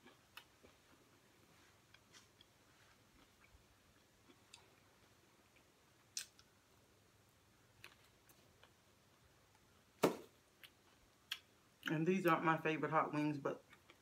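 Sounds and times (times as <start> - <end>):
mouth clicks and lip smacks: 10.6 - 12.0.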